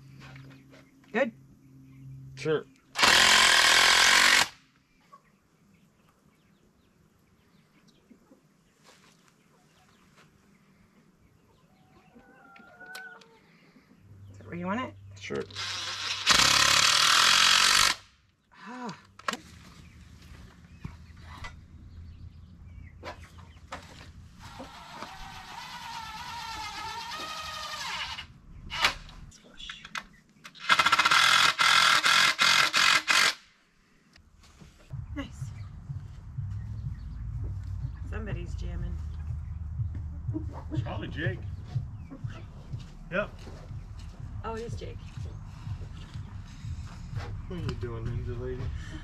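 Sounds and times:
cordless drill driving screw: 0:03.0 - 0:04.6, 0:15.5 - 0:18.0, 0:24.8 - 0:29.0, 0:30.5 - 0:33.4
chickens clucking: 0:05.0 - 0:14.4, 0:19.7 - 0:25.6, 0:39.0 - 0:44.2
rooster crowing: 0:12.1 - 0:13.4.

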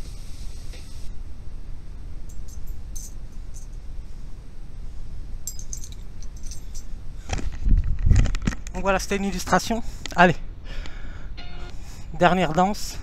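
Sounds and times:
steady low rumble: 0:00.0 - 0:13.0
faint metallic clinks: 0:02.3 - 0:03.8, 0:05.4 - 0:06.9.

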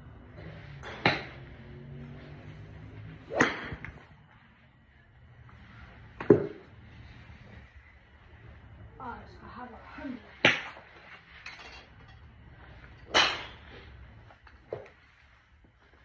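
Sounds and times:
golf clubs striking balls: 0:00.4 - 0:04.2, 0:06.0 - 0:06.8, 0:10.3 - 0:15.4.

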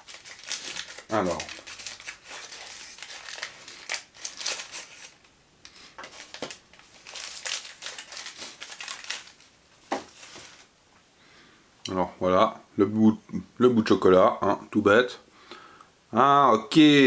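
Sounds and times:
foil wrapper crinkling: 0:00.0 - 0:10.7.

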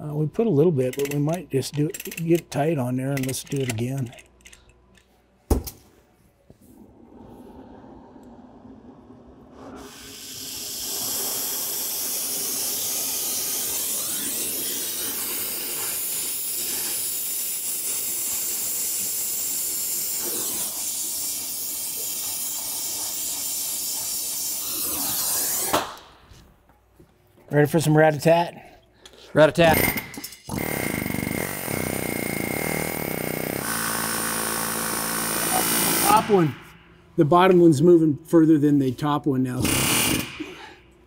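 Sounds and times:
torch flame hissing: 0:07.0 - 0:25.9.

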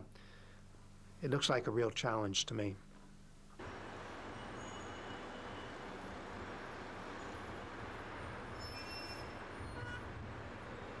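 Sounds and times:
traffic rumble and hiss: 0:03.4 - 0:11.0.

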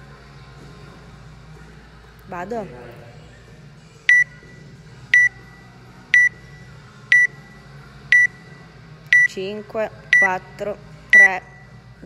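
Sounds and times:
countdown timer beeps: 0:04.1 - 0:04.3, 0:05.1 - 0:05.3, 0:06.1 - 0:06.4, 0:07.1 - 0:07.4, 0:08.1 - 0:08.3, 0:09.1 - 0:09.4, 0:11.1 - 0:11.7.

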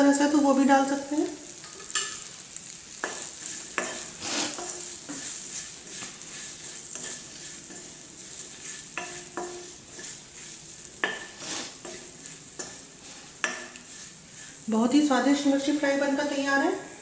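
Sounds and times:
frying sizzle: 0:00.0 - 0:17.0
spatula scraping metal pan: 0:01.7 - 0:14.7
spatula knocking pan: 0:02.9 - 0:10.3, 0:10.9 - 0:13.9.

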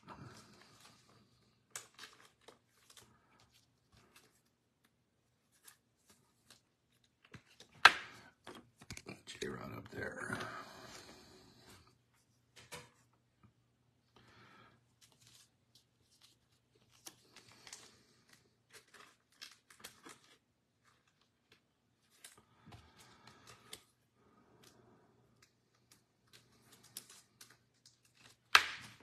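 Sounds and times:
cards and wrappers rustling: 0:00.0 - 0:13.2, 0:14.8 - 0:29.0
sharp crackle of wrapper: 0:16.1 - 0:22.4.

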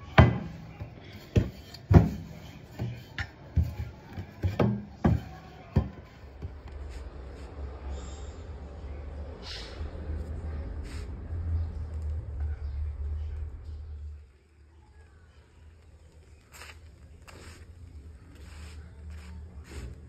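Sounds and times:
bottle rolling dough on counter: 0:00.0 - 0:07.1, 0:15.8 - 0:20.0.

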